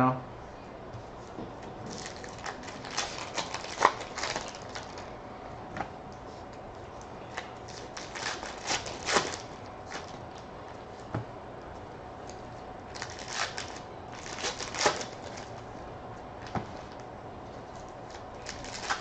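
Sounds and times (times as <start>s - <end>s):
wrapper crinkling and tearing: 1.9s - 5.1s, 7.3s - 10.4s, 12.9s - 15.6s, 17.8s - 19.0s.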